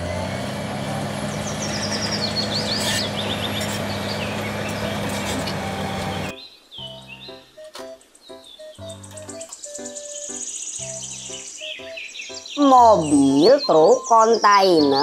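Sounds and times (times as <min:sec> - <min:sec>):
bulldozer diesel engine running: 0:00.0 - 0:06.3
high falling squeaks: 0:01.7 - 0:06.3.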